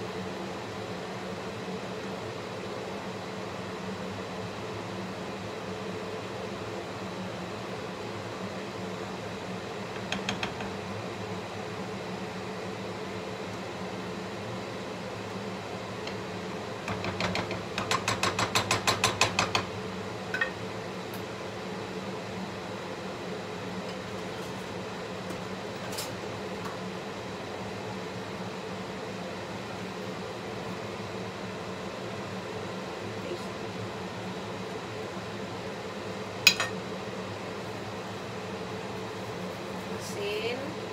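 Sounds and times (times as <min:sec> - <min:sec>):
range hood fan humming: 0:00.0 - 0:40.9.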